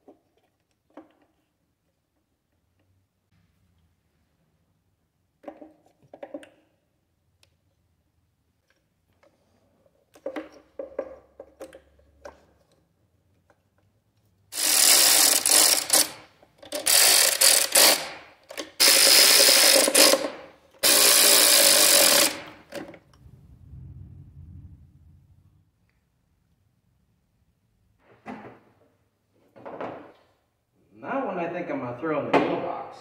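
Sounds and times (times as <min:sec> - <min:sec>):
clicks and knocks of parts handled: 0:00.0 - 0:03.0, 0:05.4 - 0:06.8, 0:08.6 - 0:14.3
cordless electric ratchet running: 0:14.5 - 0:22.7.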